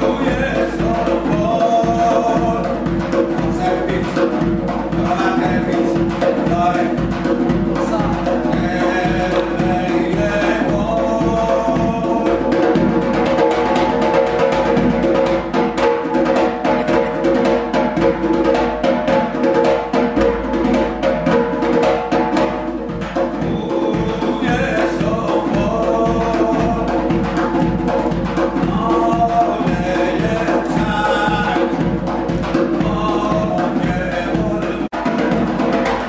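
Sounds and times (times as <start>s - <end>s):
man chanting: 0.0s - 15.0s, 23.1s - 36.0s
goblet drum beaten fast: 0.0s - 36.0s.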